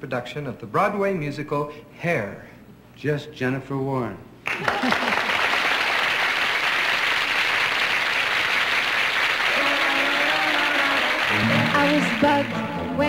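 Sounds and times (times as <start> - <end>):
studio audience applauding: 4.4 - 13.0
instrumental song introduction: 11.2 - 13.0.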